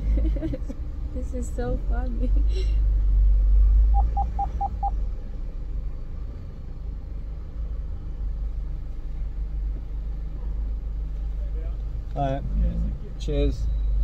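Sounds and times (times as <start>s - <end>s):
short beeps: 3.9s - 5.0s
car engine idling: 3.9s - 13.6s.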